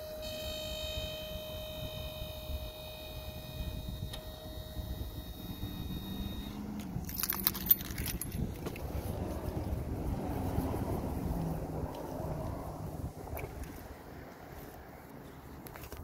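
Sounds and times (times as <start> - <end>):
faint steady high tones: 0.0 - 7.8
wind on microphone: 1.0 - 13.9
metallic jingling clinks: 6.8 - 8.8.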